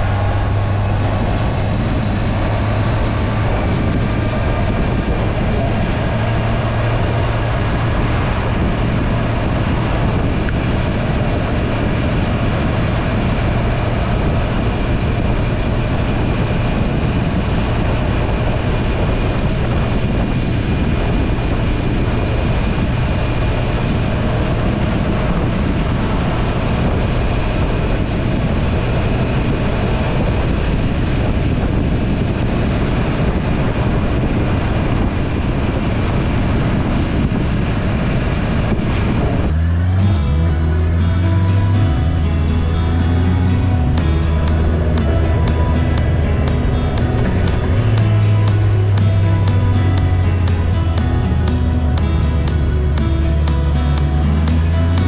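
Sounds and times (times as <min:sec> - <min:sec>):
wind rush on microphone: 0:00.0 - 0:40.2
motorcycle engine drone: 0:00.0 - 0:55.0.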